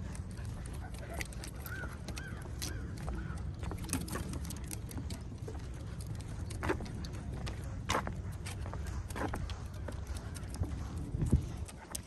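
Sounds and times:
footsteps on wooden boardwalk: 0.0s - 12.0s
wind rumble on microphone: 3.0s - 12.0s.

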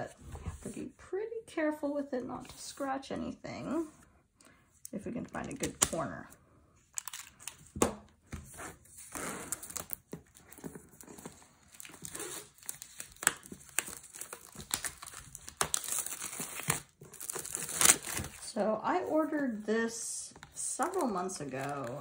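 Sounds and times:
plastic wrap crinkling and tearing: 6.9s - 7.8s, 9.0s - 18.5s.

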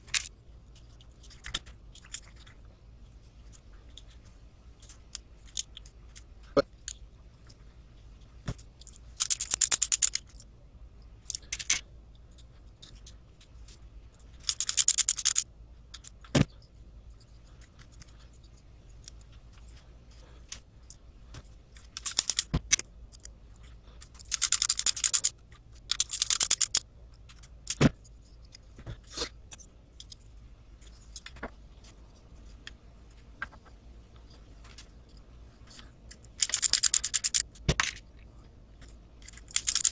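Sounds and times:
rapid clicking and rattling: 8.6s - 10.4s, 14.2s - 16.4s, 21.8s - 23.3s, 24.0s - 27.9s, 35.7s - 38.0s, 39.2s - 39.9s.

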